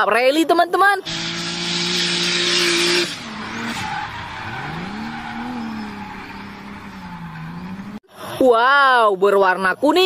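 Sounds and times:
car engine revving: 0:01.0 - 0:08.0
tyres screeching: 0:01.0 - 0:08.0.

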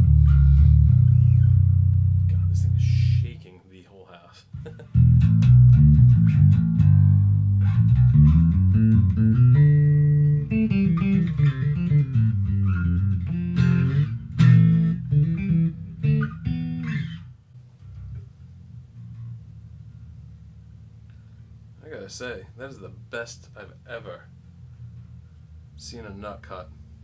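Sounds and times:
electric bass plucked with fingers: 0:00.0 - 0:03.4, 0:04.5 - 0:21.8.

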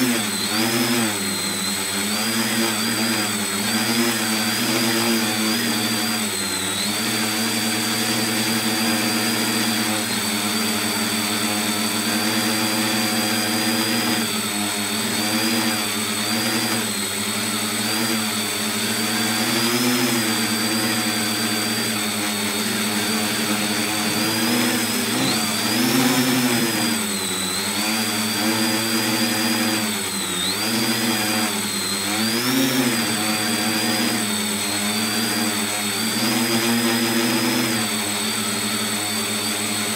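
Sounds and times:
electric motors and propellers buzzing: 0:00.0 - 0:39.9
high motor whine: 0:11.9 - 0:35.1.

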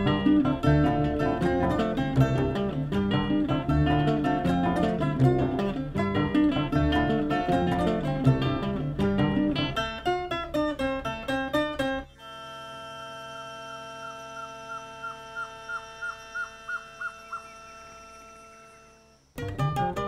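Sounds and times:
acoustic guitar music: 0:00.0 - 0:17.0, 0:18.0 - 0:20.0
steady held tones: 0:10.1 - 0:19.8.

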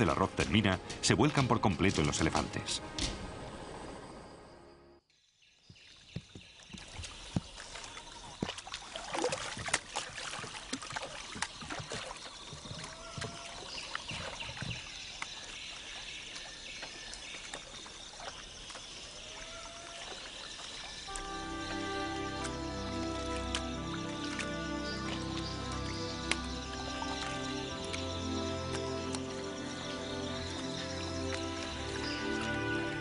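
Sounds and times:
water splashing and sloshing: 0:05.7 - 0:33.0.

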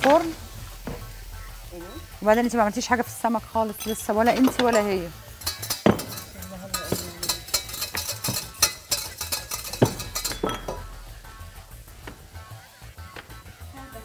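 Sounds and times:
background music: 0:00.0 - 0:14.0
metal utensils clinking on pot: 0:03.5 - 0:11.4.

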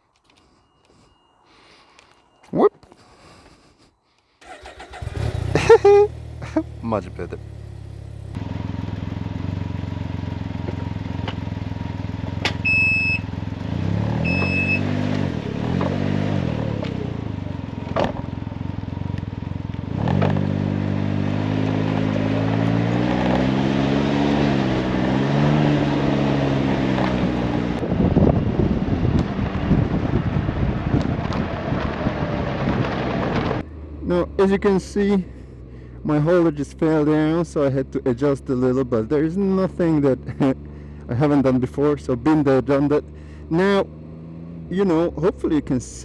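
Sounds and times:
wind and road noise: 0:00.0 - 0:46.0
engine idling and revving: 0:04.4 - 0:46.0
short electronic beeps: 0:12.6 - 0:13.3, 0:14.2 - 0:15.0.

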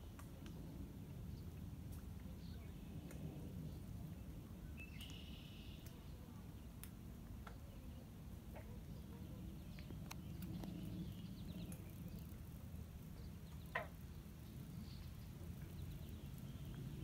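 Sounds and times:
low steady rumble: 0:00.0 - 0:17.0
faint clicks: 0:00.1 - 0:00.8, 0:01.4 - 0:03.5, 0:04.9 - 0:06.1, 0:09.7 - 0:14.0.

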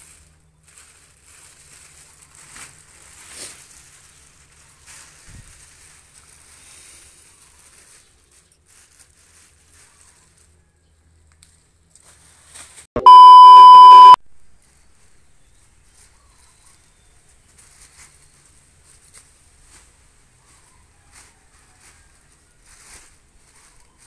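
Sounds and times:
faint rustles: 0:00.0 - 0:12.8, 0:14.6 - 0:24.0
electronic beep: 0:13.0 - 0:14.2.

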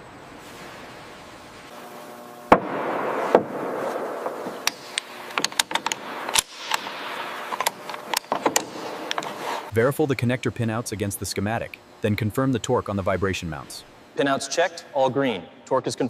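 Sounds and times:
faint hum: 0:00.0 - 0:16.0
steady hiss: 0:00.0 - 0:16.0
sharp knock: 0:02.5 - 0:04.5
scattered clicks and knocks: 0:04.2 - 0:09.4.

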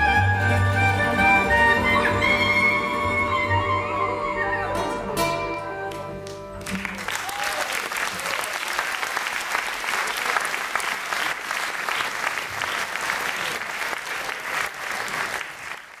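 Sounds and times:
audience applauding: 0:05.9 - 0:16.0.

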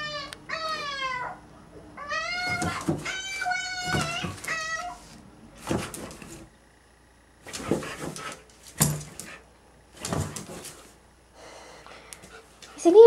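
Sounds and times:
dog whining: 0:00.0 - 0:05.2
dog scuffling on cushioned bed: 0:02.4 - 0:06.5, 0:10.0 - 0:10.9.

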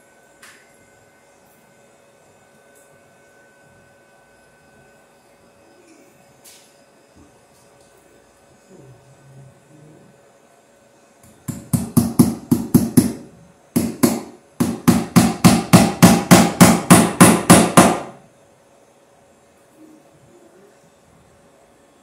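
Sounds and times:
hammer striking wooden joist: 0:11.5 - 0:13.2, 0:13.8 - 0:18.2.

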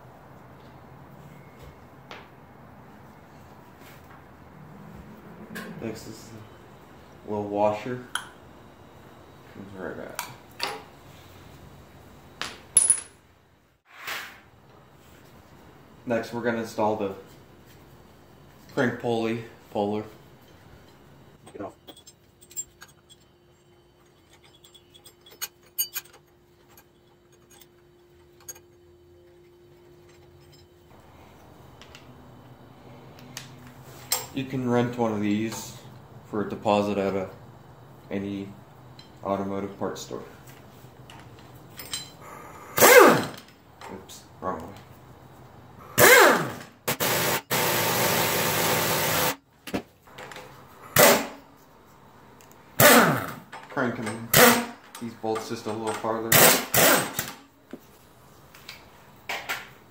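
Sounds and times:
faint steady hum: 0:00.0 - 0:13.8, 0:14.4 - 0:46.0
light metal clicks and clinks: 0:20.4 - 0:28.8, 0:41.1 - 0:42.2
power tool whirring: 0:46.0 - 0:49.4.

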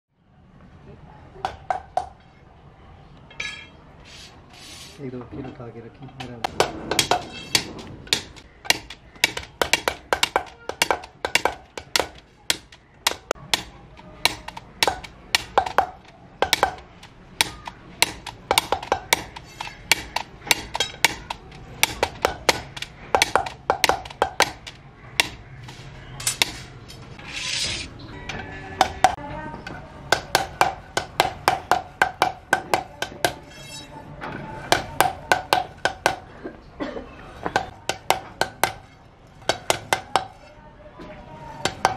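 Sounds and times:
hammer tapping metal tubes: 0:06.2 - 0:26.6, 0:28.3 - 0:29.2, 0:30.1 - 0:33.8, 0:34.7 - 0:36.3, 0:37.4 - 0:40.4, 0:41.6 - 0:41.9.

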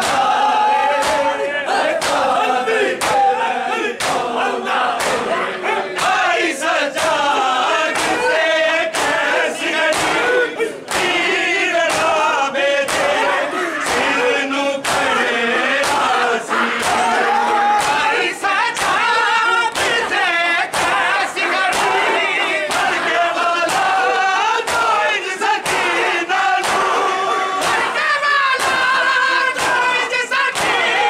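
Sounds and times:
hand slaps on bare chests: 0:00.0 - 0:00.4, 0:01.0 - 0:02.4, 0:03.0 - 0:03.3, 0:04.0 - 0:04.3, 0:05.0 - 0:05.3, 0:06.0 - 0:06.3, 0:06.9 - 0:07.2, 0:07.9 - 0:08.3, 0:08.9 - 0:11.2, 0:11.9 - 0:12.2, 0:12.8 - 0:13.2, 0:13.8 - 0:14.2, 0:14.8 - 0:15.2, 0:15.8 - 0:16.2, 0:16.8 - 0:17.1, 0:17.8 - 0:21.1, 0:21.7 - 0:22.1, 0:22.7 - 0:24.0, 0:24.6 - 0:25.0, 0:25.6 - 0:26.0, 0:26.6 - 0:27.0, 0:27.6 - 0:28.0, 0:28.6 - 0:30.9
men chanting together: 0:00.0 - 0:31.0.

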